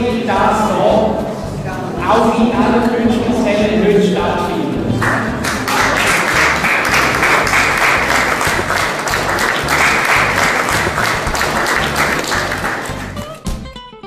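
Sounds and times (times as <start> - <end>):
audience applauding: 4.9 - 13.4.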